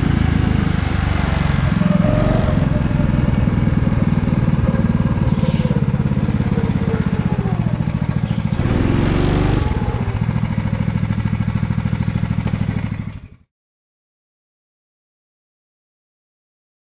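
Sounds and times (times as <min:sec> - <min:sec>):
go-kart engine running: 0:00.0 - 0:13.5.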